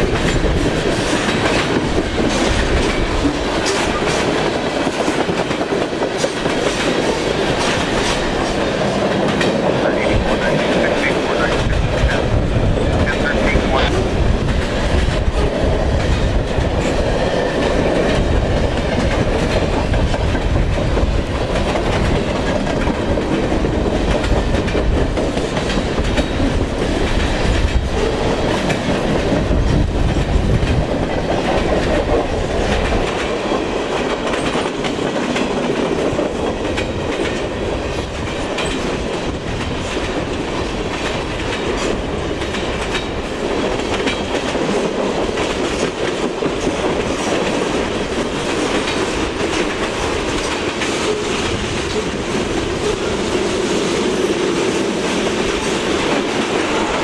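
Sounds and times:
freight train rumble: 0.0 - 57.0
train wheels clicking over rail joints: 0.0 - 57.0.

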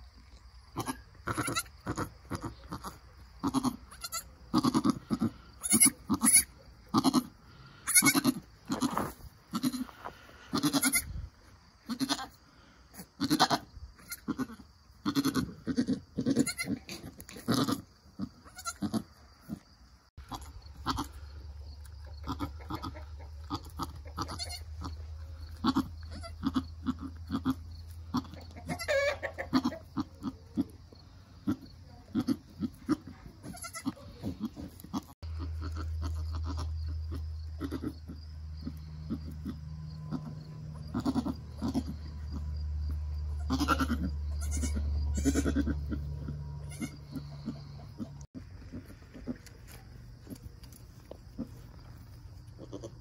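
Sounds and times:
goats bleating: 0.8 - 11.1, 11.9 - 12.3, 13.2 - 16.8, 17.5 - 19.0, 20.2 - 21.2, 22.2 - 24.9, 25.5 - 30.3, 32.2 - 36.7, 40.9 - 42.0, 43.3 - 46.0, 46.6 - 48.2, 52.6 - 53.0.

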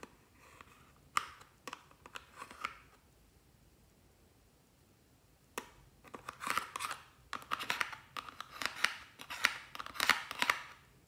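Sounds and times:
spatula scraping plastic palette: 0.0 - 3.0, 5.6 - 10.8.

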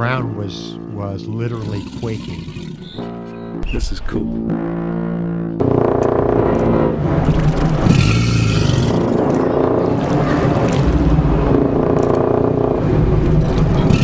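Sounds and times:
alligators bellowing: 0.2 - 3.6, 7.3 - 11.0, 13.8 - 14.0.

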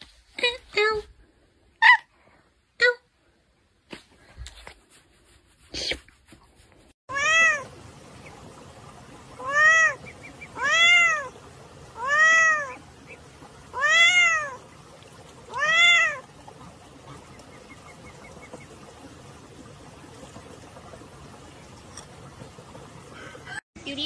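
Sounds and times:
cat meowing: 7.1 - 7.7, 12.0 - 12.8, 13.7 - 14.6.

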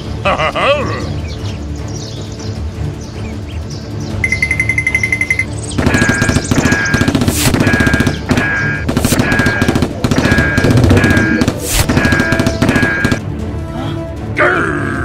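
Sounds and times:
fast rattling beat music: 4.3 - 13.2.

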